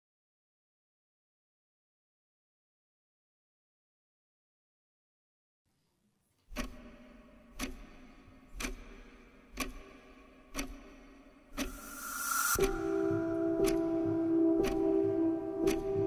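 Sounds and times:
sharp ticking: 6.6 - 16.0
rising hiss: 11.7 - 12.8
held musical chord: 11.7 - 16.0.

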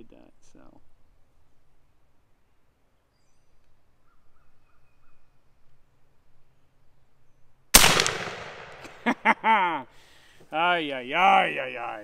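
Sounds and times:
air rifle shot: 7.8 - 9.1.

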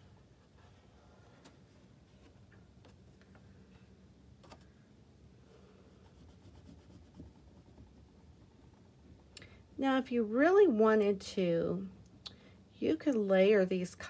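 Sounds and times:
low room hum: 0.0 - 14.0
oil pastel rubbing on paper: 5.9 - 8.1.

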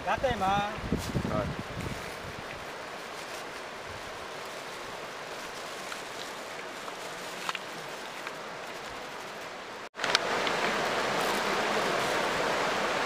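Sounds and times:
river water rushing: 1.7 - 13.0.

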